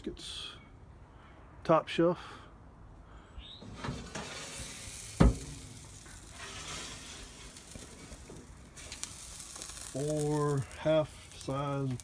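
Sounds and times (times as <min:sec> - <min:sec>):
meat sizzling on grill grates: 0:03.8 - 0:12.0.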